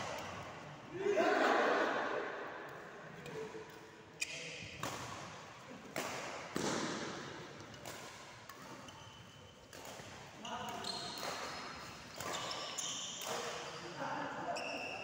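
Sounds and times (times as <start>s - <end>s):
shuttlecock struck by rackets: 5.9s - 8.2s.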